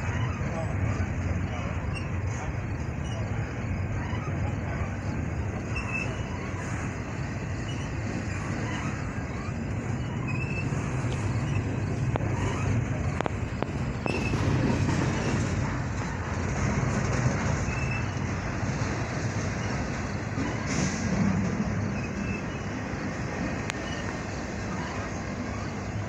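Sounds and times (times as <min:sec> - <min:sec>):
steel wheels rumbling on rails: 0:00.0 - 0:26.0.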